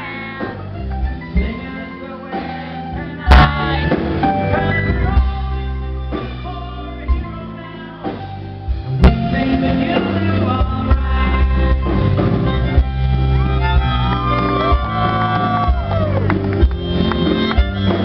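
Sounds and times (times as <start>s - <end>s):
live band music: 0.0s - 18.0s.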